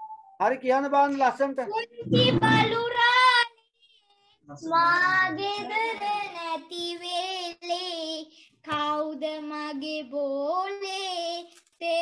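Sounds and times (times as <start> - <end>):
child singing: 1.7 - 3.6, 4.6 - 12.0.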